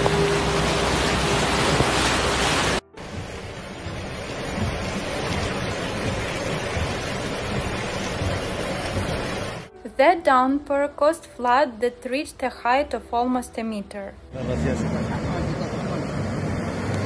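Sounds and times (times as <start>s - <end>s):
floodwater rushing: 0.0s - 9.7s
heavy rain: 0.0s - 9.7s.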